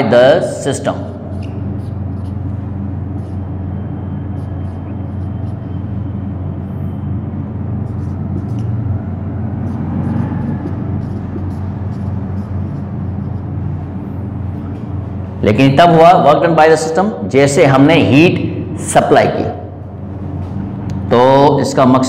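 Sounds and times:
low background rumble with hum: 0.0 - 22.0
marker writing on whiteboard: 0.7 - 6.2, 7.8 - 15.2.

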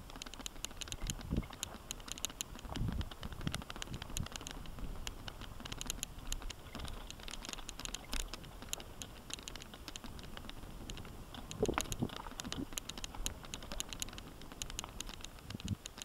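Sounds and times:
mountain bike rattling and clicking: 0.0 - 16.0.

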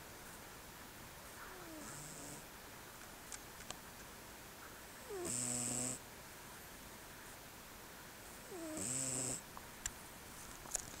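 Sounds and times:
cat snoring: 1.5 - 2.4, 5.0 - 6.0, 8.4 - 9.4.

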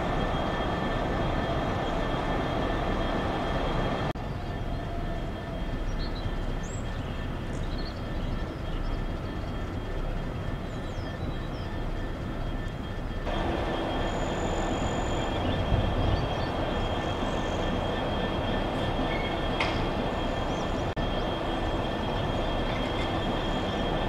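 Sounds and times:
diesel locomotive engine running: 0.0 - 24.0.

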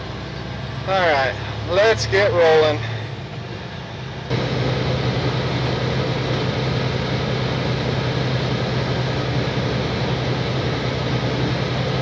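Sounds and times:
road noise: 0.0 - 12.0
truck engine drone: 0.0 - 12.0.

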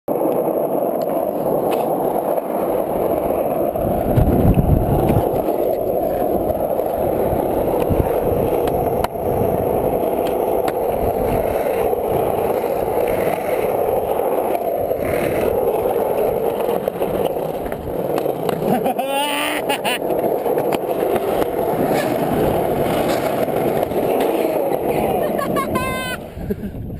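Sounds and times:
skateboard wheels clicking over cracks: 0.1 - 26.5
skateboard wheels rolling on asphalt: 0.1 - 26.9.

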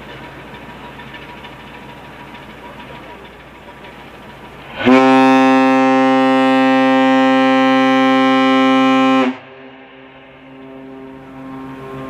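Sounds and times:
ship's horn long blast: 4.7 - 12.0.

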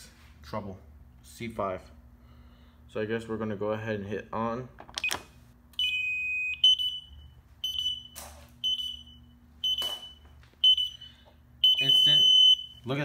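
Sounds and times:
alarm keypad beeping: 5.8 - 12.8.

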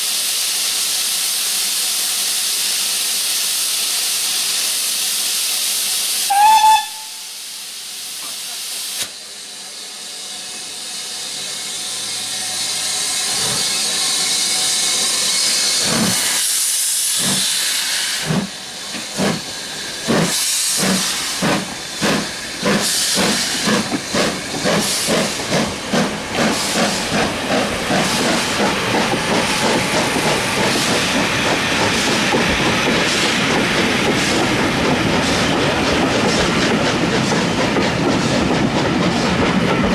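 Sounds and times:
steam hissing from cylinders: 0.0 - 39.8
steam locomotive exhaust beats: 0.0 - 39.9
steam locomotive whistle: 6.2 - 7.5.

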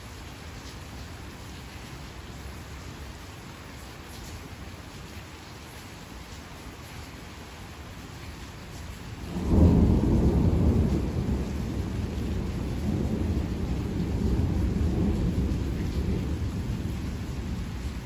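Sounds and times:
rain hissing: 0.0 - 18.0
thunder rumbling: 9.2 - 18.0.

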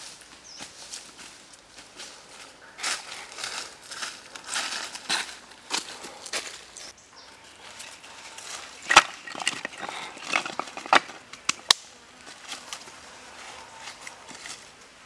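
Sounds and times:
firewood pieces clacking together: 7.8 - 11.8.

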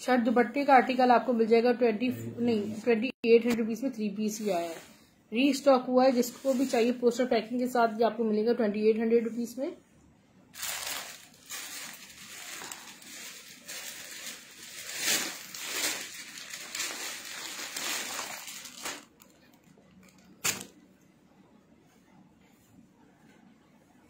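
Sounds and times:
plastic packaging crinkling: 10.5 - 20.8.

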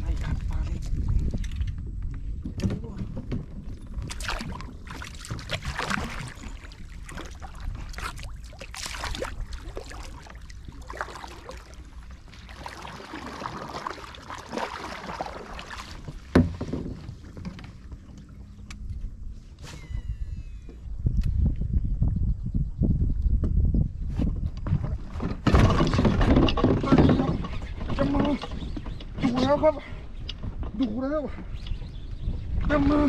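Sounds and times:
paddle knocking on hull: 2.5 - 17.9, 24.6 - 29.6
kayak paddle splashing: 4.0 - 18.4.

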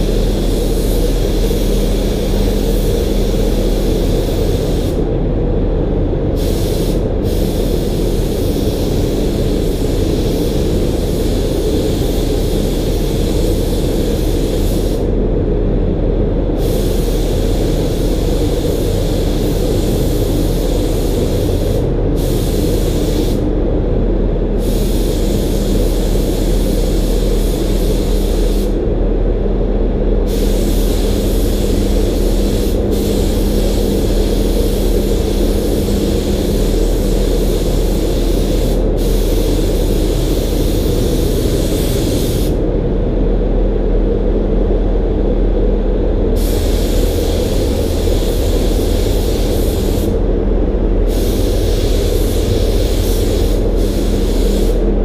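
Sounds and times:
steady low hum: 0.0 - 55.0
spray gun hissing: 6.4 - 15.1, 16.6 - 23.4, 24.6 - 28.8, 30.3 - 42.6, 46.4 - 50.2, 51.1 - 54.9.

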